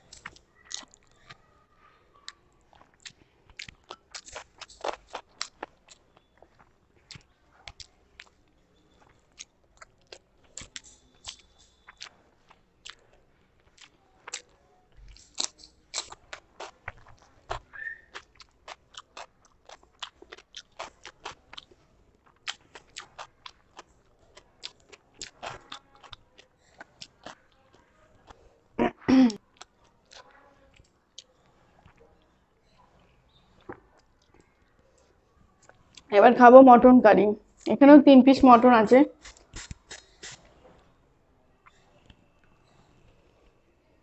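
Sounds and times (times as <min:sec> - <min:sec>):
person chewing and lip-smacking: 0:00.0 - 0:01.4, 0:02.2 - 0:32.2, 0:39.2 - 0:40.4.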